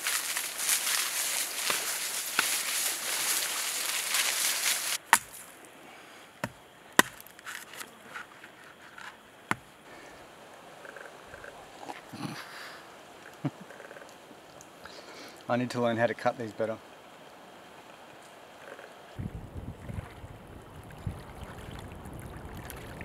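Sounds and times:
dry palm fronds rustling: 0.0s - 10.2s
machete chopping coconut: 5.0s - 5.4s, 6.4s - 7.3s.

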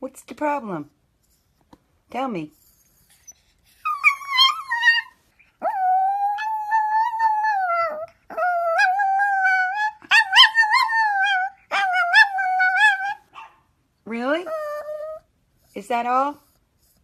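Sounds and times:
dog howling and whining: 3.8s - 13.5s, 14.4s - 15.3s.

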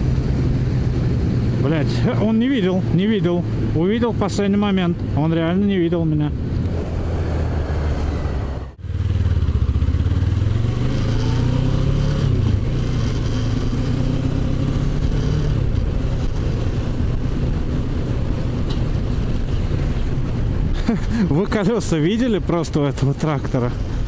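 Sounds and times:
road and wind noise: 0.0s - 24.0s
motorcycle engine accelerating: 6.5s - 20.0s.

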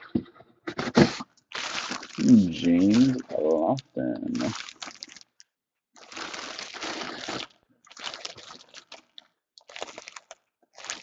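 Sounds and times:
plastic bag crinkling: 1.5s - 3.4s, 4.4s - 11.0s.

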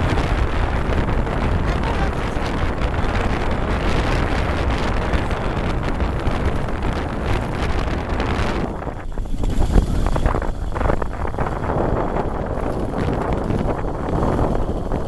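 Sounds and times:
runners rumbling on ice: 0.0s - 15.0s
wind buffeting microphone: 0.0s - 15.0s.

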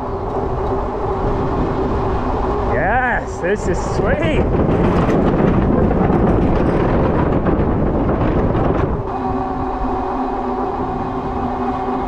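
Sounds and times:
wind rushing over microphone: 0.0s - 12.0s
electric motor whine: 9.1s - 12.0s.

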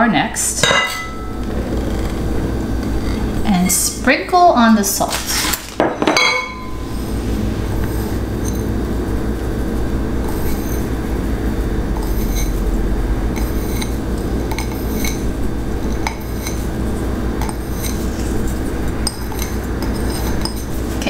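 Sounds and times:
steady low hum: 0.0s - 21.0s
glass bowls clinking: 0.6s - 1.5s, 5.8s - 6.8s, 19.0s - 20.7s.

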